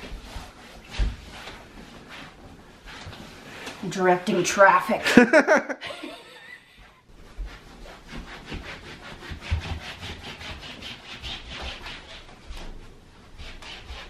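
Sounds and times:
socks sliding on hardwood floor: 0.0s - 3.8s.

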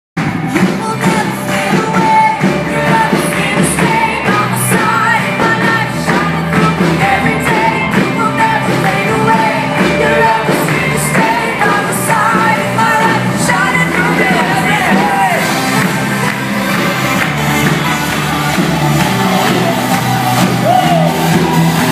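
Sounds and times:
drums: 0.2s - 21.9s
electric guitars: 0.2s - 21.9s
keyboards: 0.2s - 21.9s
two singers singing: 0.6s - 15.8s.

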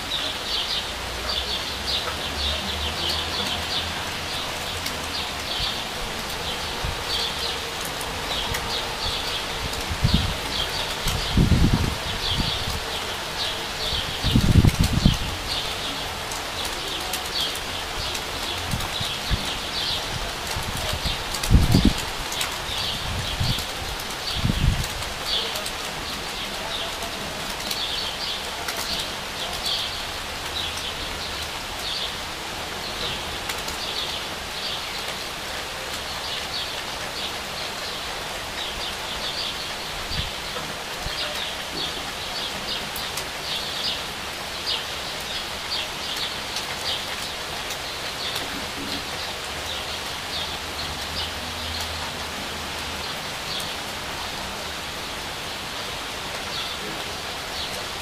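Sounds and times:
steady rain falling: 0.0s - 58.0s
birds chirping: 20.8s - 52.0s, 52.7s - 58.0s.

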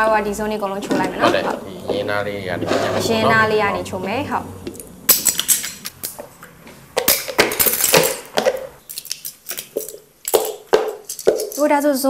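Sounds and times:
plastic spoons clinking: 5.1s - 6.3s, 7.0s - 11.6s.

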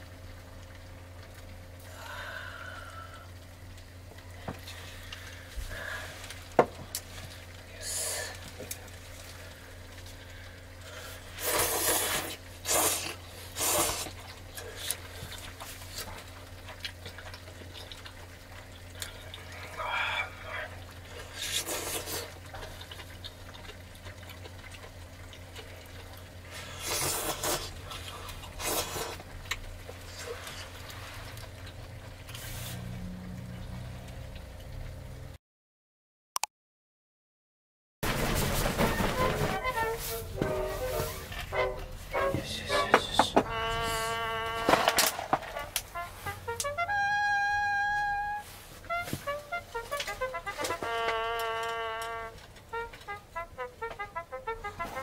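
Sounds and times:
steady low hum: 0.0s - 35.4s, 38.1s - 54.8s
person slurping noodles: 11.4s - 15.0s, 21.3s - 22.4s, 26.6s - 29.2s.

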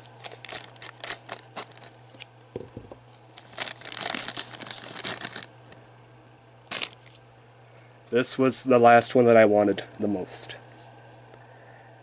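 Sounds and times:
plastic packaging crinkling: 0.0s - 2.3s, 3.3s - 5.5s, 6.7s - 7.2s.

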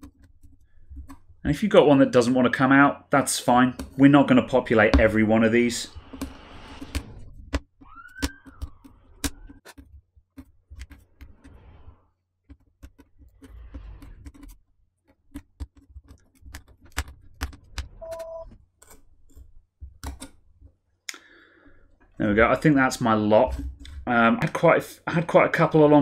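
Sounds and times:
brief pitched tone: 18.0s - 18.5s.

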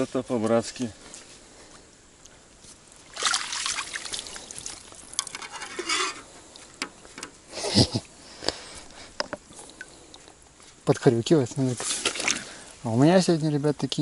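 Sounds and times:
water splashing off net: 3.0s - 5.3s, 11.8s - 12.6s.

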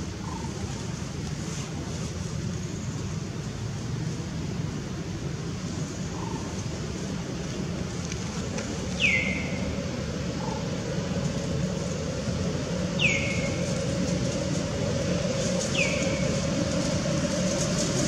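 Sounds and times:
low background hum: 0.0s - 18.0s
bird whistled call: 9.0s - 9.6s, 13.0s - 13.7s, 15.7s - 16.4s.

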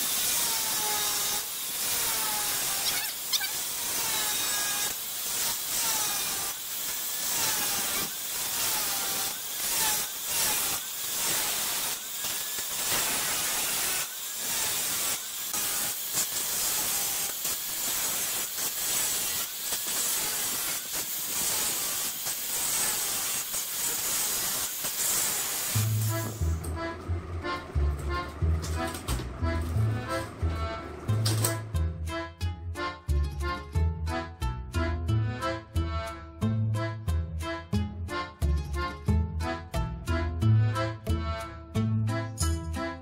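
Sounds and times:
angle grinder cutting metal: 0.0s - 31.8s.

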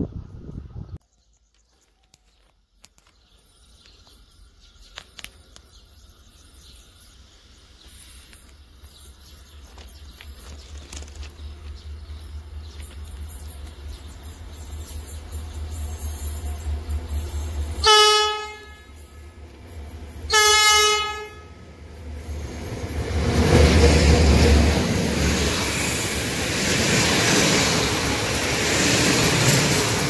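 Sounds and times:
insects chirping: 3.0s - 17.8s
electric locomotive rumble: 4.8s - 30.0s.

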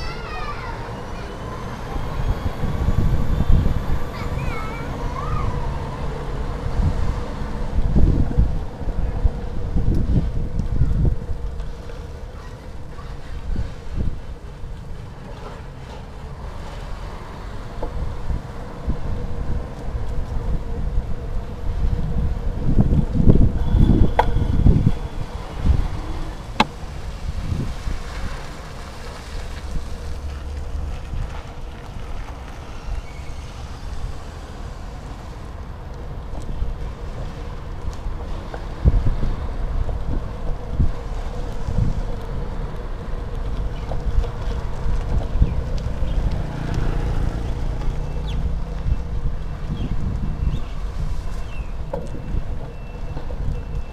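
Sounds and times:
wind buffeting microphone: 0.0s - 15.0s, 17.6s - 34.4s, 36.3s - 53.9s
low road rumble: 0.0s - 53.9s
bicycle ride bumps: 36.2s - 53.9s.

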